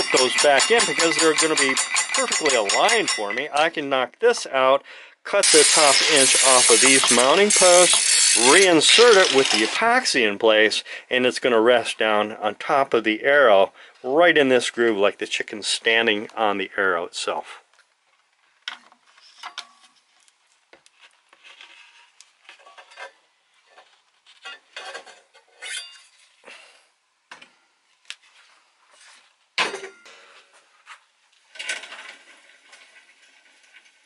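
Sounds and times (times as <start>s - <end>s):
metal parts clinking and scraping: 0.0s - 3.7s, 5.4s - 9.8s.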